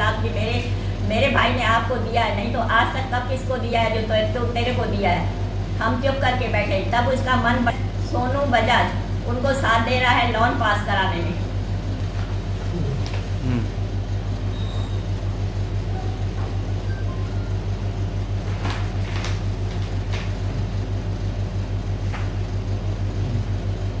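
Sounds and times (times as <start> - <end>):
low pulsing hum: 0.0 - 24.0
paper sheets crackling: 18.4 - 20.4.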